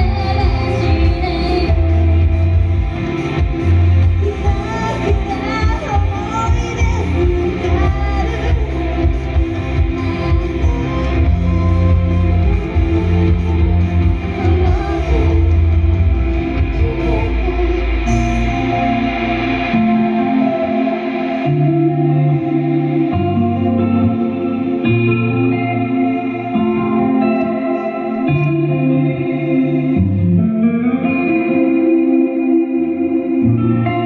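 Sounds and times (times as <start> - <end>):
women singing pop song: 0.0 - 2.7, 4.0 - 19.0
band backing track with bass: 0.0 - 34.0.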